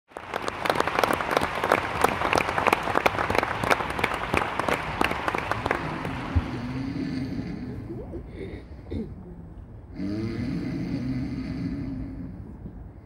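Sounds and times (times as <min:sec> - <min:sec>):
audience applauding: 0:00.1 - 0:07.3.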